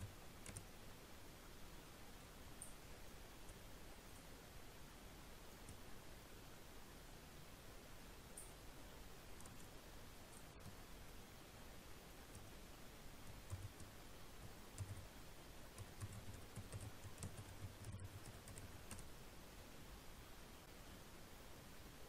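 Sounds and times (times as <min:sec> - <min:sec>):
computer keyboard typing: 0:00.0 - 0:00.7, 0:09.4 - 0:09.7, 0:13.2 - 0:15.1, 0:15.7 - 0:19.1.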